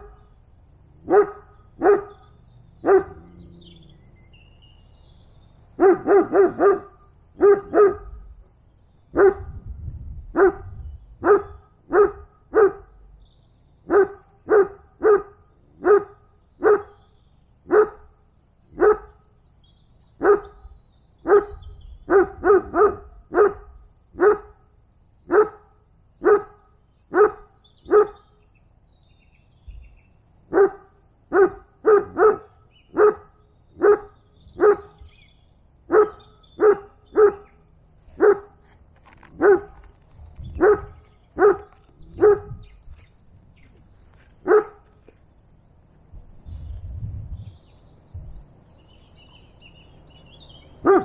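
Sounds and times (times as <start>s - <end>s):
dog barking: 1.0s - 2.2s, 2.8s - 3.3s, 5.8s - 8.2s, 9.1s - 9.6s, 10.4s - 12.9s, 13.9s - 17.0s, 17.7s - 18.1s, 18.8s - 19.2s, 20.2s - 20.6s, 21.2s - 24.6s, 25.3s - 28.2s, 30.5s - 35.1s, 35.9s - 38.6s, 39.4s - 39.8s, 40.6s - 42.7s, 44.4s - 44.9s.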